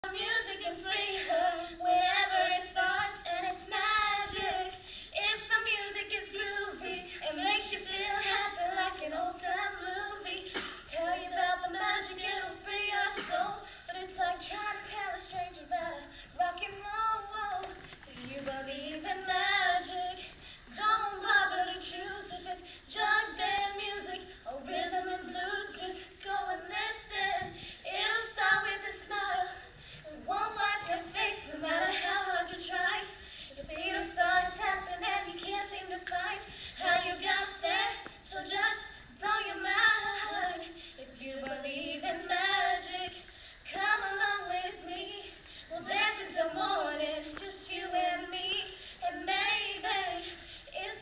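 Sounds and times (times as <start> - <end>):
women singing unaccompanied: 0.0 - 51.0.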